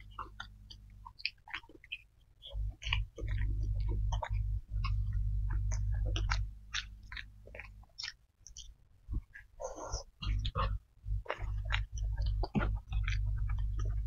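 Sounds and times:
close chewing with mouth clicks: 0.0 - 14.0
deep low rumble: 2.6 - 6.8, 10.2 - 14.0.

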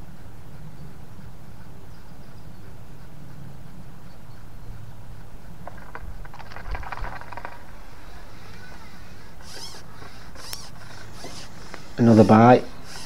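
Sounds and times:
fishing tackle clicking and rustling: 5.6 - 8.1.

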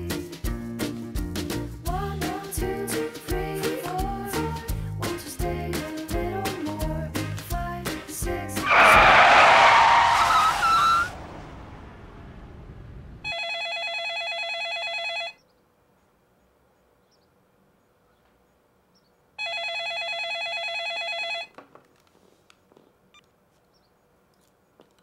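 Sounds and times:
telephone ringing: 13.3 - 15.4, 19.4 - 21.5.

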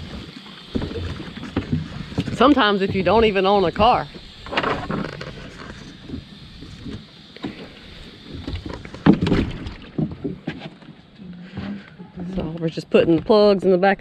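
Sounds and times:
gear knocking in a boat: 0.0 - 7.6, 8.4 - 11.0.

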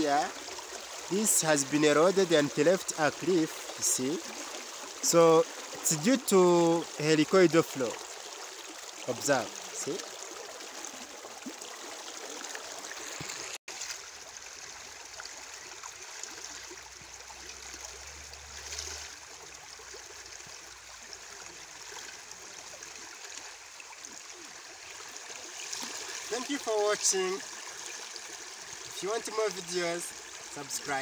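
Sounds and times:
river water rushing: 0.0 - 13.6.

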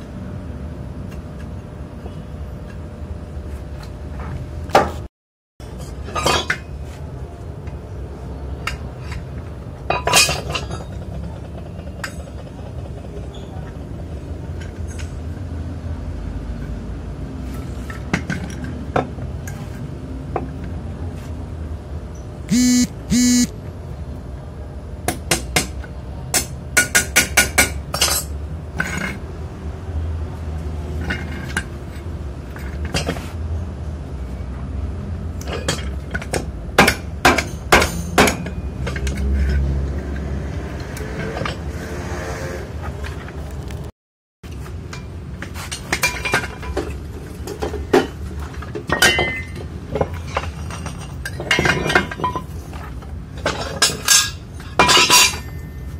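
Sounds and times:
welding arc buzzing: 22.5 - 23.5.

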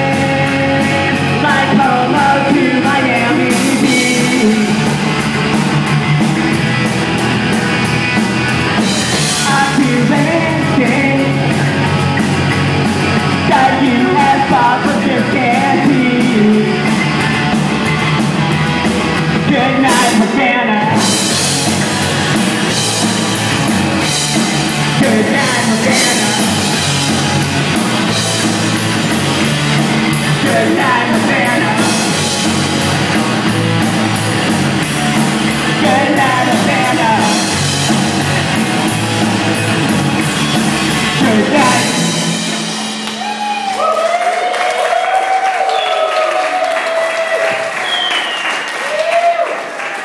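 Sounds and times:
person singing: 0.0 - 5.0, 9.2 - 11.6, 13.3 - 17.0, 19.4 - 21.3, 24.8 - 26.9, 30.1 - 32.4, 35.7 - 37.7, 41.0 - 43.9
distorted electric guitar: 0.0 - 45.0
drum kit: 0.0 - 49.4
audience applause and whoops: 43.0 - 50.0.

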